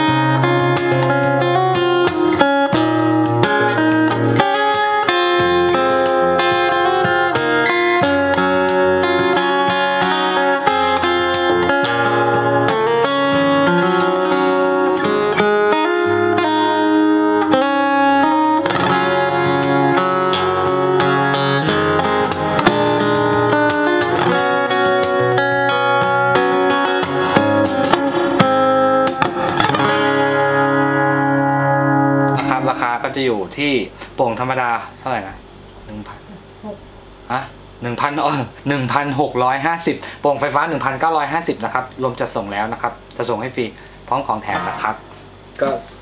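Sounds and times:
acoustic guitar fingerstyle: 0:00.0 - 0:33.1, 0:44.5 - 0:46.0.

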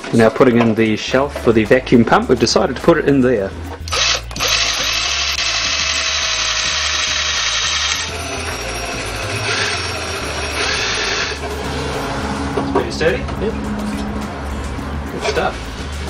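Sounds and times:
cordless drill on steel panel: 0:03.9 - 0:11.4.

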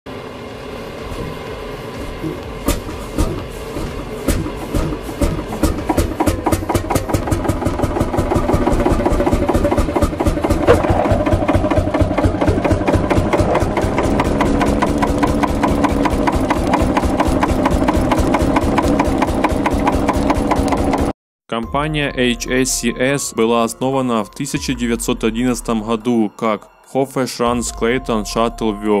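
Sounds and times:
old tractor engine running: 0:02.4 - 0:21.1.

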